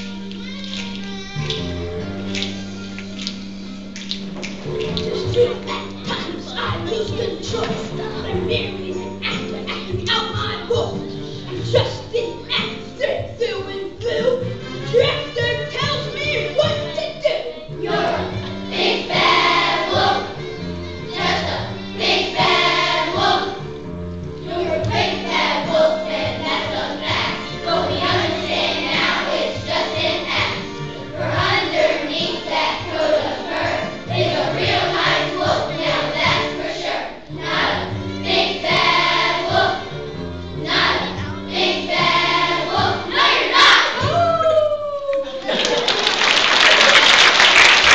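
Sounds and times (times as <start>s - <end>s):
instrumental accompaniment: 0.0s - 44.2s
children's choir singing: 4.9s - 14.5s, 16.5s - 23.7s, 24.4s - 44.1s.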